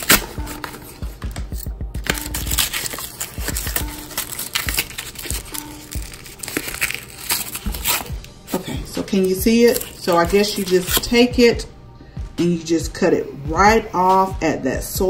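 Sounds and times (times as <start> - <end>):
knife scraping wrapper: 0.0 - 11.2
packaging rustling and tearing: 0.0 - 11.2.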